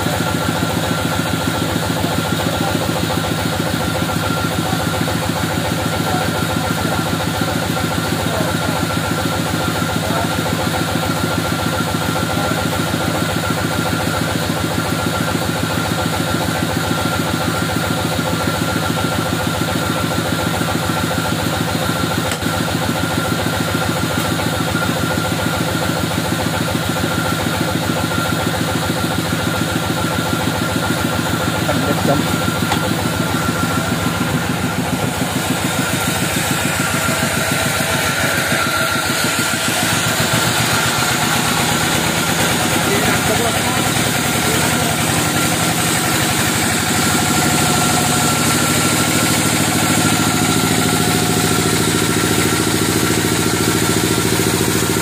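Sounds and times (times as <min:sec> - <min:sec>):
engine pulsing: 0:00.0 - 0:55.0
bandsaw high whine: 0:31.2 - 0:55.0.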